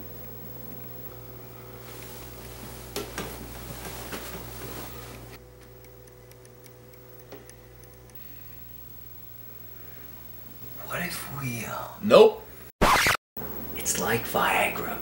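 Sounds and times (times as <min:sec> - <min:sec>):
bedsheets rustling: 0:01.6 - 0:05.4
clock ticking: 0:05.7 - 0:08.2.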